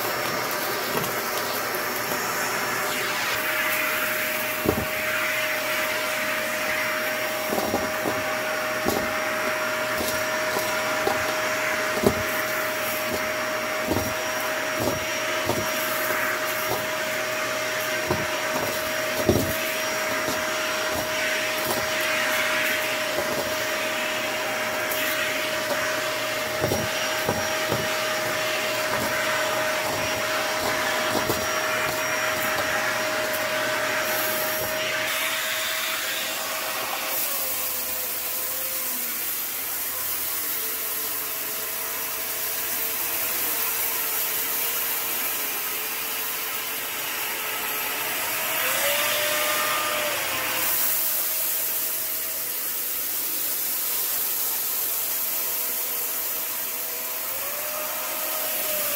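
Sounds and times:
brush tool on rug: 0.0s - 37.4s
cordless vacuum running: 0.0s - 58.9s.

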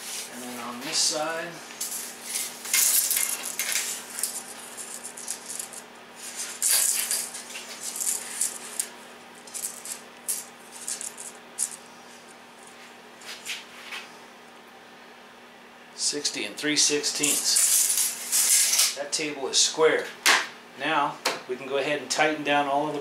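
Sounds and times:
tape measure scraping on table: 1.8s - 8.9s, 17.2s - 19.0s
tape measure clicks: 6.6s - 8.9s.

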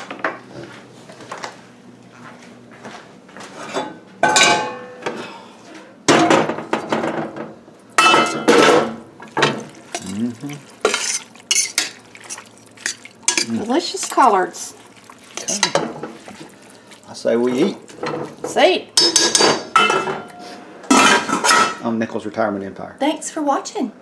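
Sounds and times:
metal lid and spoon clanking on pot: 8.0s - 10.1s, 12.8s - 13.6s, 17.9s - 21.8s.

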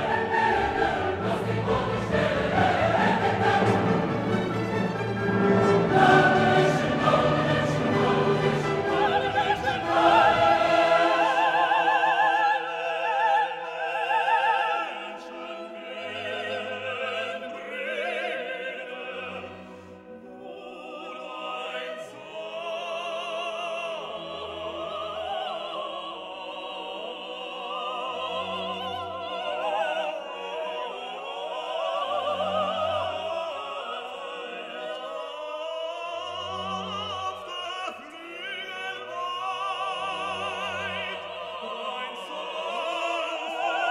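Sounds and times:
orchestra playing: 0.0s - 12.5s
operatic singing voice: 0.0s - 43.9s.

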